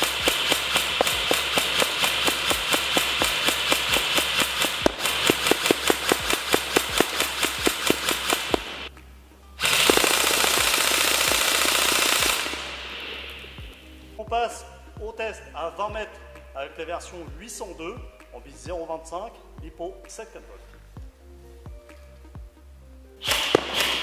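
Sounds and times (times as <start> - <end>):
airsoft rifle firing: 0.0 - 8.9, 9.6 - 13.8, 23.2 - 24.0
faint background music with beat: 0.0 - 24.0.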